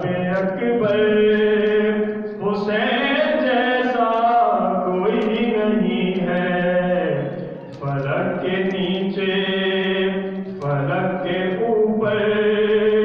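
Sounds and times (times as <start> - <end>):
person chanting slow melody: 0.0 - 13.0.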